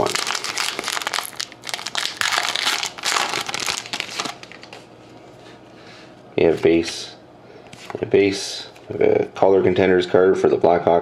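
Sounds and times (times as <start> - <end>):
foil wrapper crinkling: 0.0 - 4.8.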